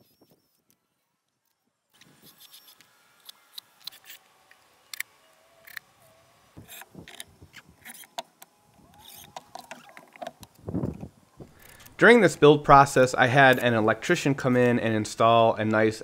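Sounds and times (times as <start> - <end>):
cordless drill driving screws: 2.0 - 10.1.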